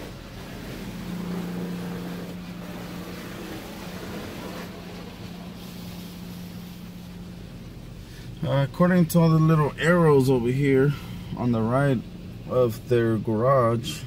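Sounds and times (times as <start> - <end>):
cloth brush washing car: 0.0 - 8.1
water spraying: 0.0 - 12.6
car wash motor hum: 0.0 - 14.0.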